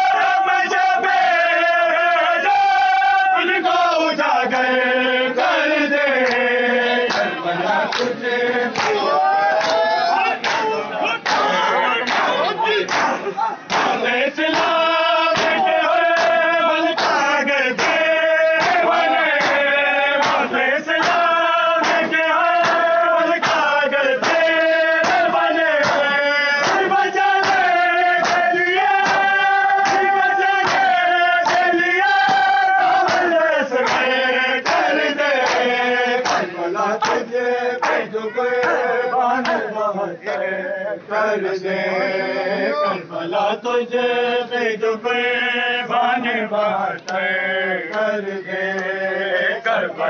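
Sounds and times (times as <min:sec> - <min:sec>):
men singing a lament: 0:00.0 - 0:50.0
hands slapping chests: 0:06.2 - 0:06.5, 0:07.1 - 0:38.8.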